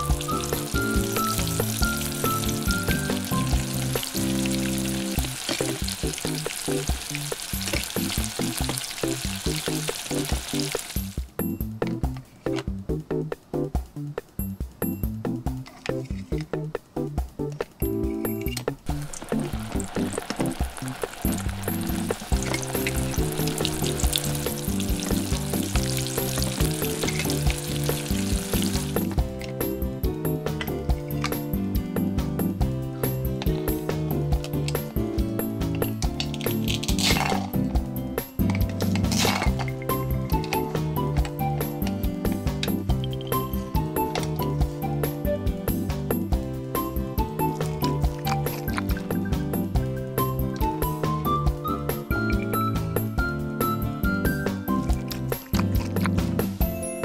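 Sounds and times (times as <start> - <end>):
frying sizzle: 0.0 - 11.2, 18.9 - 29.2
background music: 0.0 - 57.0.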